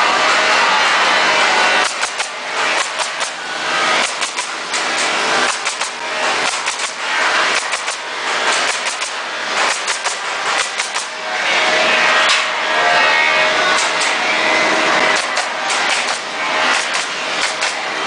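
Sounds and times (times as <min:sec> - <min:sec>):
nail gun firing into wood: 0:01.8 - 0:11.2, 0:13.8 - 0:14.2, 0:15.1 - 0:17.8.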